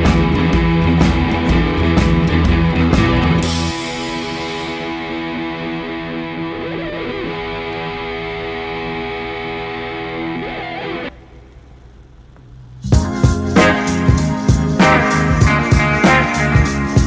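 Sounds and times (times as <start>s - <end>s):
distorted electric guitar chords: 0.0s - 17.0s.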